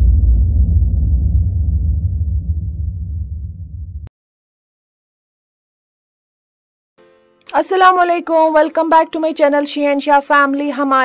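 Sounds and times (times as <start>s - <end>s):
deep rumbling boom: 0.0s - 4.1s.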